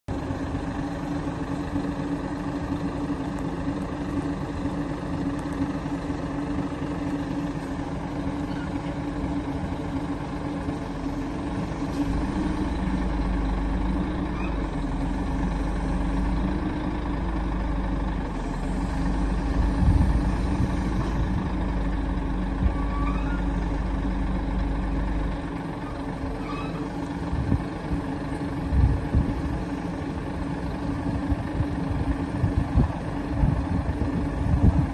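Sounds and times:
heavy low engine rumble: 0:00.0 - 0:34.9
diesel truck engine running: 0:00.1 - 0:34.9
crane clanks: 0:01.4 - 0:34.9.

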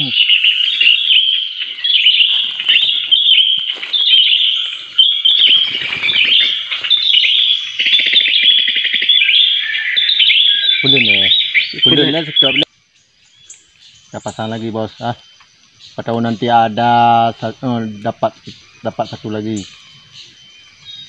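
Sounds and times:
branches rustling: 0:00.0 - 0:08.5
small birds chirping: 0:00.0 - 0:21.0.

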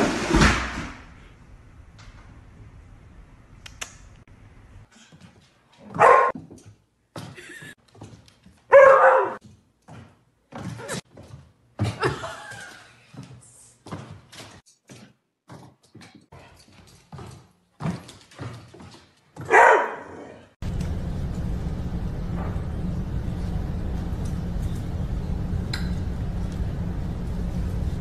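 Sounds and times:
dog barking: 0:05.9 - 0:06.3, 0:08.7 - 0:09.4, 0:19.4 - 0:20.4.

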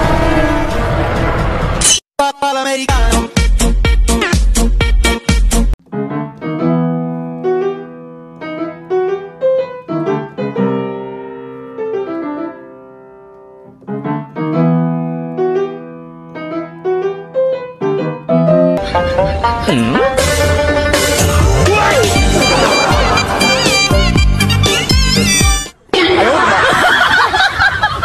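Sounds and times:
solo piano music: 0:05.8 - 0:20.6.

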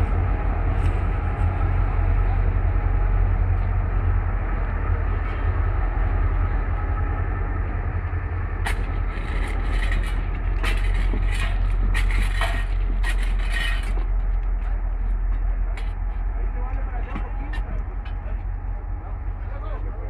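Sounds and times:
diesel locomotive idling: 0:00.0 - 0:20.0
metal tools clinking on rail: 0:08.6 - 0:14.2.

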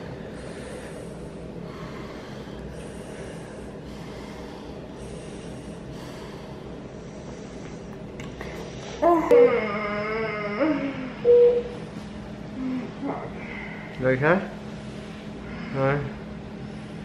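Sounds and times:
woman breathing deeply: 0:00.0 - 0:09.2, 0:10.0 - 0:14.0
steady low hum: 0:00.0 - 0:17.0.

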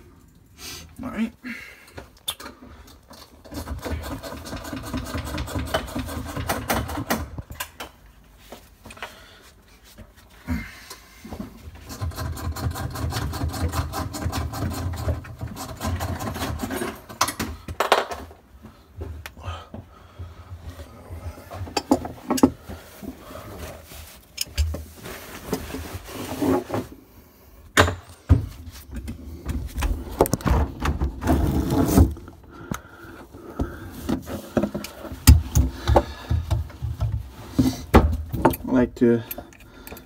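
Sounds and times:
handling clicks and rubbing: 0:21.6 - 0:25.9, 0:34.0 - 0:40.0.

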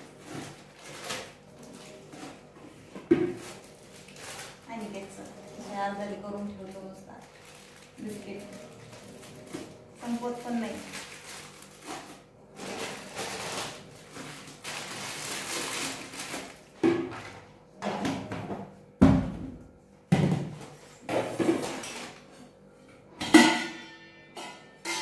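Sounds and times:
plastic bags rustling: 0:00.0 - 0:17.4
metal containers clanking: 0:23.2 - 0:25.0.

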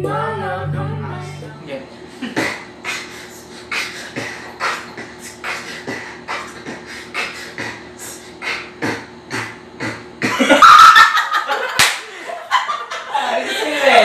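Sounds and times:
steady hum: 0:00.0 - 0:14.0
rhythmic short strokes: 0:02.4 - 0:10.4
laughter with squealing: 0:10.3 - 0:14.0.

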